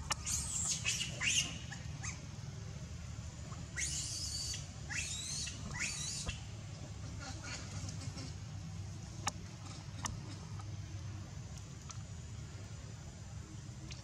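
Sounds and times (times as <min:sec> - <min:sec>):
baby monkey squealing: 0:00.2 - 0:02.2, 0:03.8 - 0:06.4.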